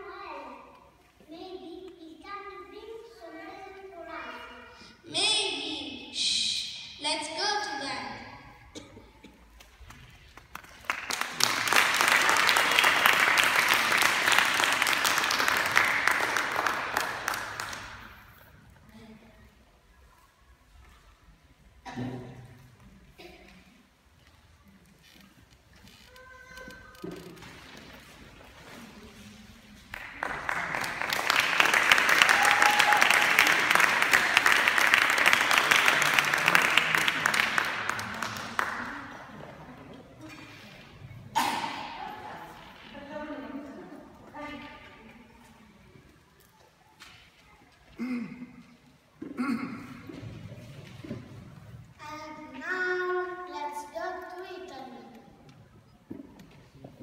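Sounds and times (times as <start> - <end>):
audience applauding: 9.9 - 18.2, 29.9 - 39.4.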